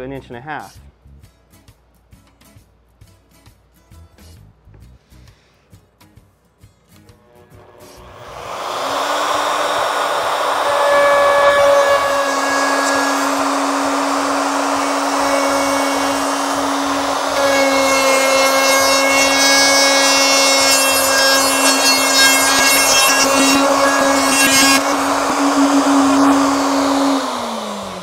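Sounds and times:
router whining and cutting: 7.2s - 28.0s.

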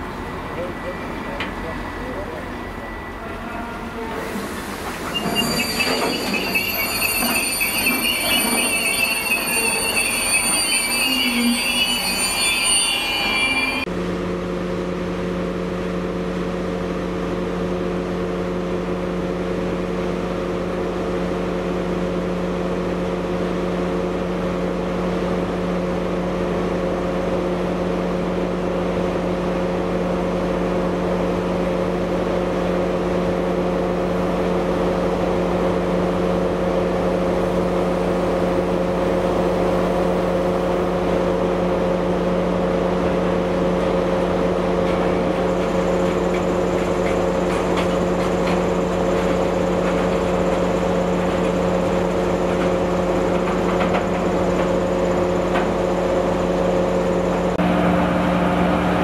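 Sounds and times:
train engine drone: 0.0s - 59.0s
rumble of rolling wagons: 43.0s - 56.8s.

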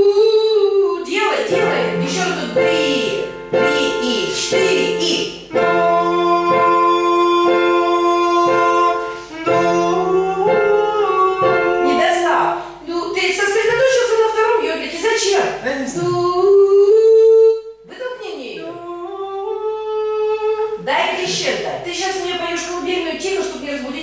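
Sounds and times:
person singing vocal exercise: 0.0s - 12.8s, 15.6s - 17.9s, 18.5s - 21.8s
keyboard accompaniment: 1.4s - 14.6s.

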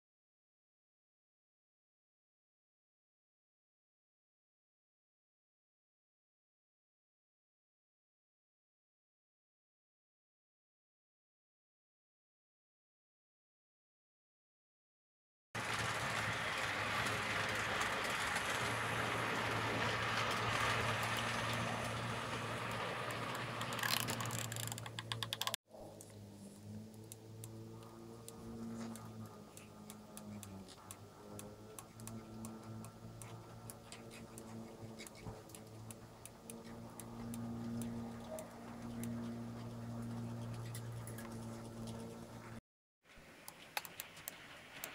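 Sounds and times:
wheels rattling on track: 15.6s - 25.6s, 43.6s - 44.9s
model train motor hum: 15.6s - 42.6s.

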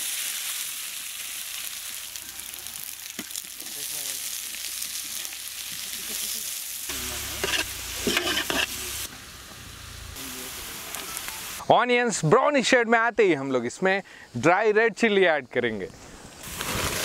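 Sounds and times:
onions sizzling in hot oil: 0.0s - 11.6s, 16.4s - 17.0s
metal spatula stirring in pan: 7.2s - 9.1s.

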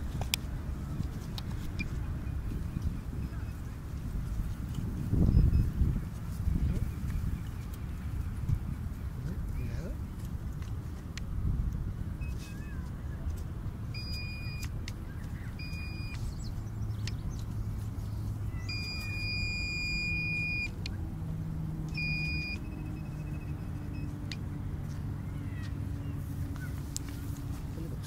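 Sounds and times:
pinpointer alert beeps: 14.0s - 14.7s, 15.6s - 16.2s, 18.6s - 20.8s, 21.9s - 24.1s.

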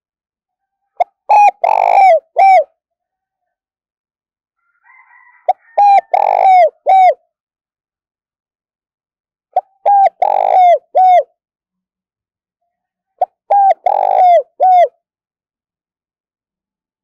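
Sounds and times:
dove cooing: 1.0s - 2.7s, 5.5s - 7.2s, 9.6s - 11.3s, 13.2s - 15.0s.

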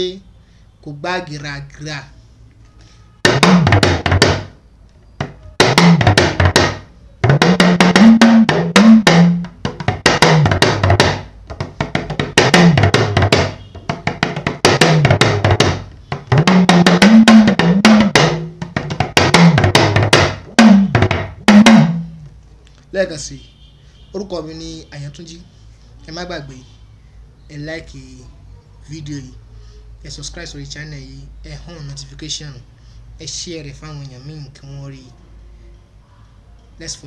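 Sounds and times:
talking drum gliding pitch: 3.3s - 4.4s, 5.2s - 22.2s.

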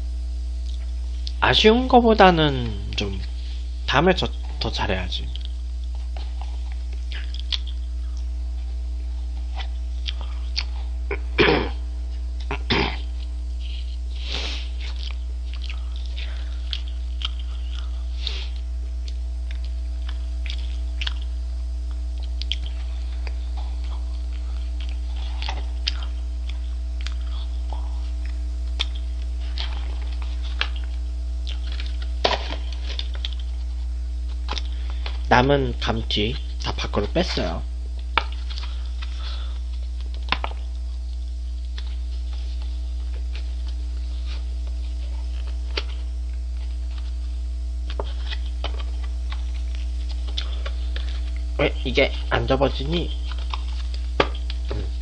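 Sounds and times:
low electrical hum: 0.0s - 55.0s
person chewing: 0.6s - 1.4s, 5.3s - 35.3s, 36.3s - 52.3s, 53.0s - 55.0s.

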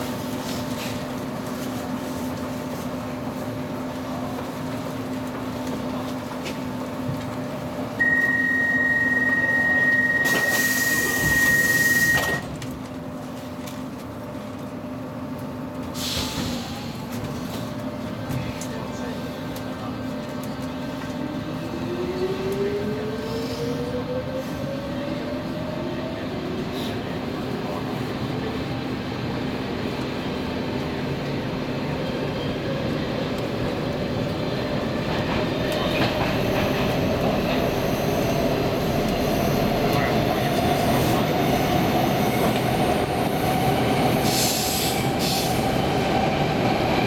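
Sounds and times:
train running rumble: 11.1s - 47.0s.

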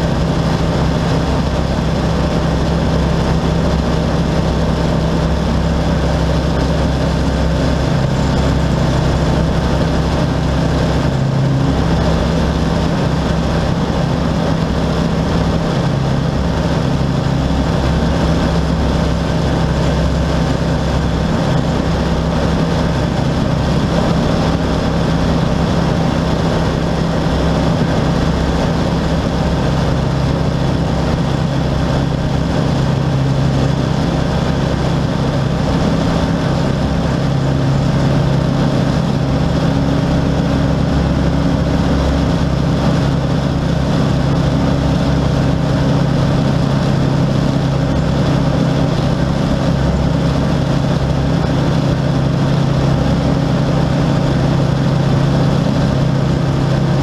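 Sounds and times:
light aircraft engine droning: 0.0s - 57.0s.

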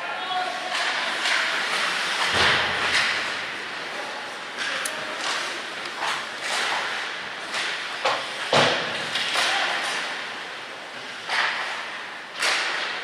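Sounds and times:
sticks striking puck: 0.7s - 3.5s, 11.2s - 13.0s.

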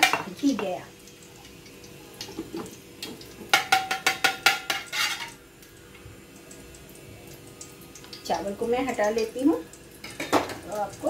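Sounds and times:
spoon clanking against pot: 3.5s - 5.4s, 10.0s - 10.6s
spoon scraping steel pot: 3.6s - 5.4s.

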